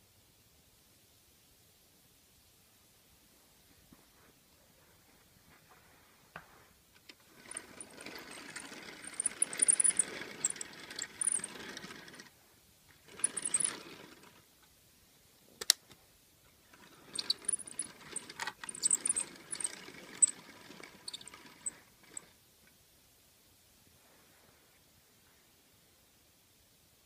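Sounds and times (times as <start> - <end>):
toy tram rolling on plastic track: 7.0 - 14.5, 16.6 - 22.4.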